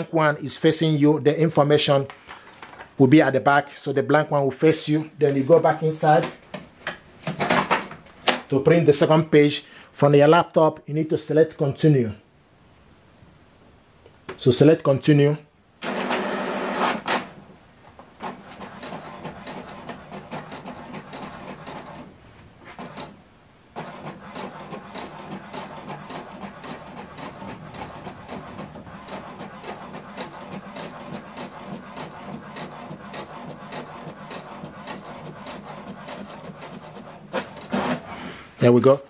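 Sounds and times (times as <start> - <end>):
inkjet printer printing: 15.8 - 17.4, 18.2 - 38.2.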